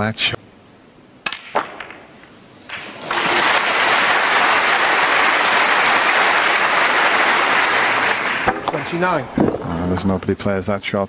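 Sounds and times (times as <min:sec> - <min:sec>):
snooker balls clicking: 0:01.3 - 0:03.0, 0:08.0 - 0:10.4
crowd applauding: 0:02.7 - 0:09.4.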